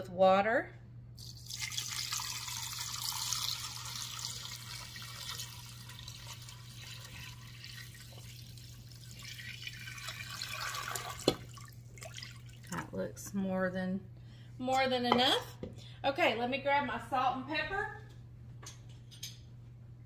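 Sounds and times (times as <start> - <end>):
water pouring into a pot: 1.2 - 12.8.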